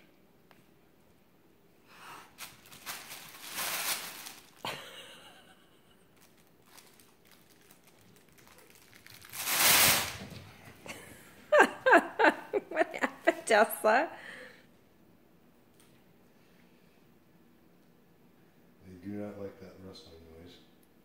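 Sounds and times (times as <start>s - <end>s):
rustling and crinkling: 2.3s - 4.7s, 6.1s - 10.8s.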